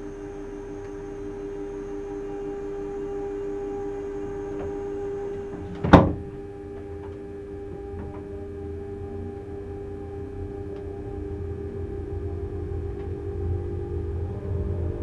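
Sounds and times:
electrical hum of railcar: 0:00.0 - 0:15.0
low rumble of running gear: 0:00.0 - 0:15.0
loud clunk: 0:05.4 - 0:08.4.

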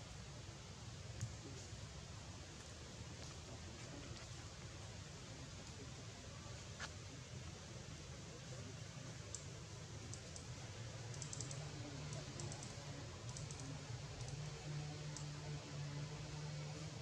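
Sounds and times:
steady low hum and hiss: 0:00.0 - 0:17.0
faint short clicks: 0:11.1 - 0:14.4.

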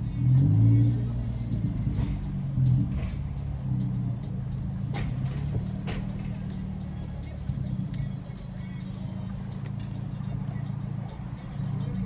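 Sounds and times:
car stereo music: 0:00.0 - 0:12.0
deep exhaust drone: 0:00.0 - 0:12.0.

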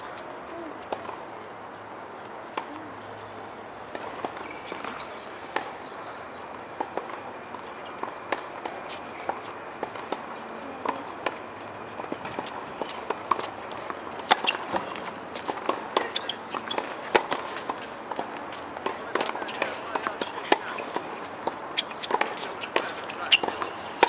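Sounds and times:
footsteps on court: 0:00.0 - 0:24.0
tennis balls bouncing on hard court: 0:02.4 - 0:24.0
tennis balls struck with rackets: 0:06.6 - 0:24.0.

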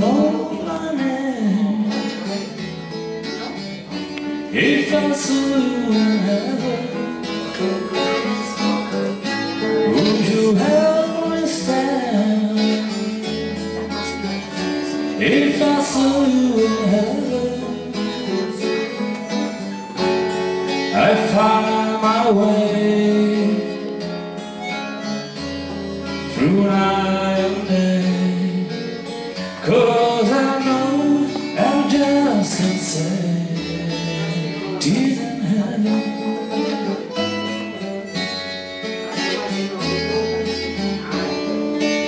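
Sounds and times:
acoustic guitars strumming: 0:00.0 - 0:42.0.

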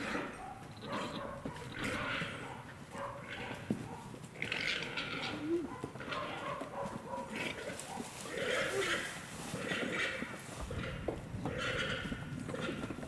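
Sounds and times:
hooves rustling through dry leaves: 0:00.2 - 0:13.0.

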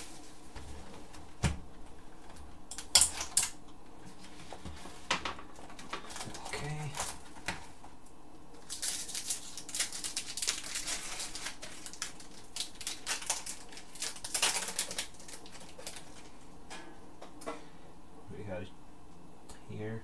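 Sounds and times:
foil wrapper crinkling: 0:05.6 - 0:07.7, 0:08.5 - 0:16.5.

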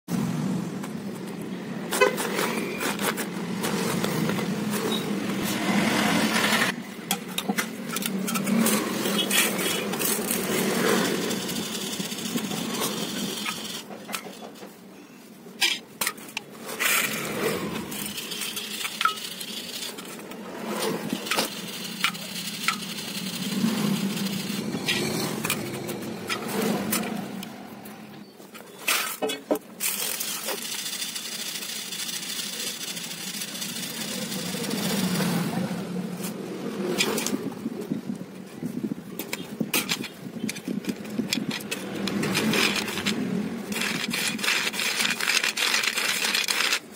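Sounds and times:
peanuts rattling on steel plate: 0:21.2 - 0:24.7, 0:29.9 - 0:35.0.

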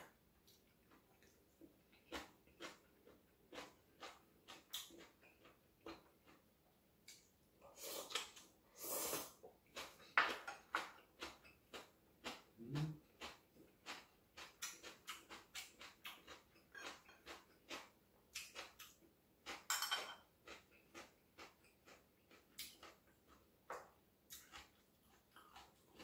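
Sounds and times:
slurping from a bowl: 0:07.7 - 0:10.0.

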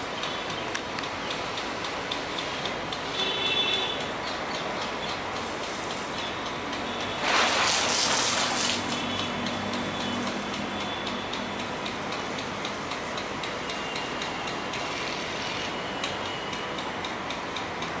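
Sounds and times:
sprinkler gun ticking: 0:00.0 - 0:18.0
water spray hissing: 0:07.0 - 0:10.5.

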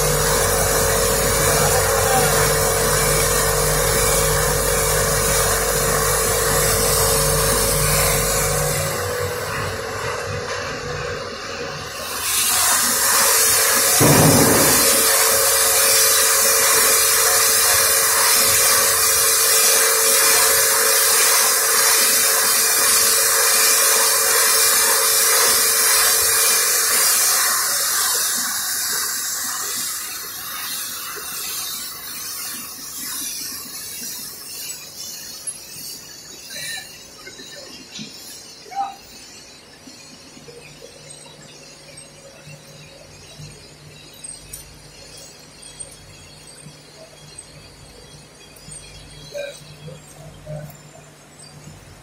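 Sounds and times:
loud steady hiss: 0:00.0 - 0:09.9, 0:11.7 - 0:37.8
low thud: 0:14.0 - 0:15.5.

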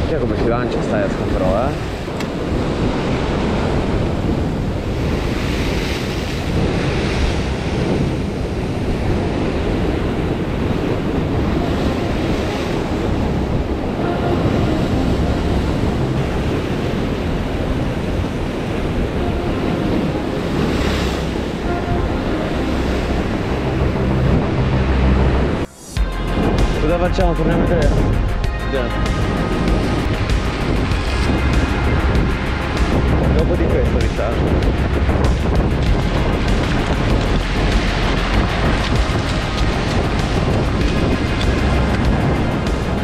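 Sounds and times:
surf breaking on rocks: 0:00.0 - 0:24.5, 0:28.7 - 0:43.0
wind buffeting microphone: 0:00.0 - 0:43.0.

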